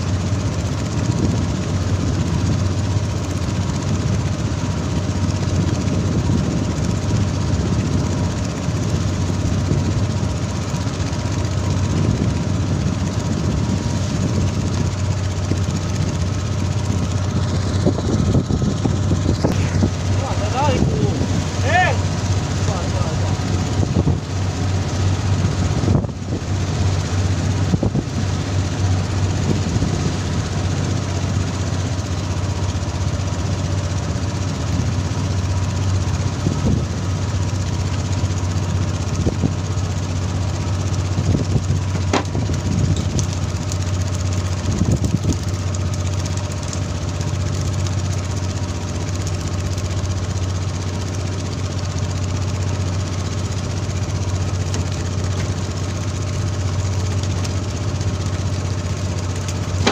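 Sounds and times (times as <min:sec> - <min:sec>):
boat engine droning: 0:00.0 - 0:59.9
sea splashing: 0:08.2 - 0:36.4.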